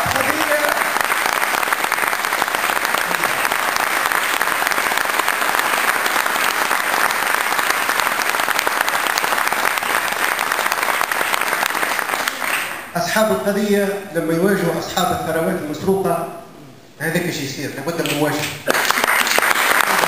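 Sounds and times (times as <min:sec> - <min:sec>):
crowd applauding: 0:00.0 - 0:12.9, 0:18.0 - 0:20.0.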